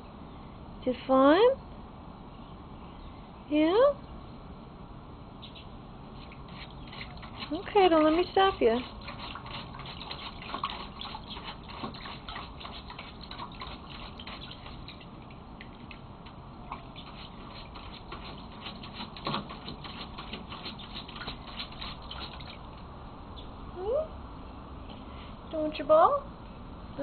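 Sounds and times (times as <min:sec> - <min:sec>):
dog splashing in shallow water: 0:06.2 - 0:16.1, 0:16.7 - 0:22.8.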